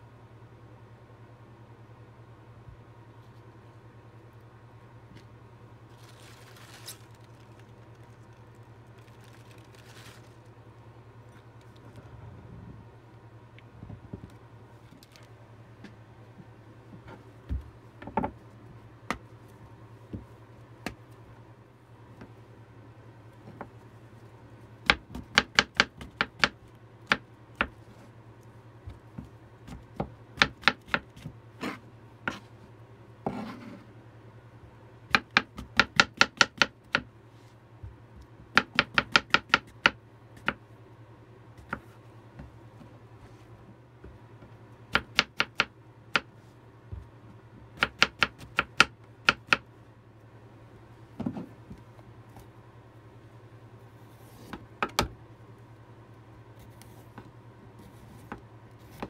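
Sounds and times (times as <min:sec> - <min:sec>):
knife chopping on cutting board: 0:29.7 - 0:32.4, 0:47.8 - 0:49.6.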